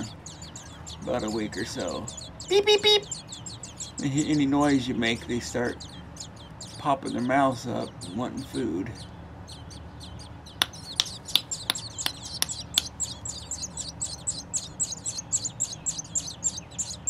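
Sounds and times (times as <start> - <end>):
nestling birds peeping: 0.0 - 17.0
sharp bird chips: 5.7 - 17.0.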